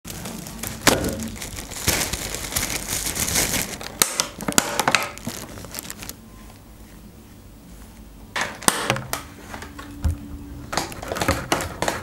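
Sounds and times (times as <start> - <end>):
plastic food box crackling: 0.1 - 6.2
plastic bags rustling: 0.1 - 6.6.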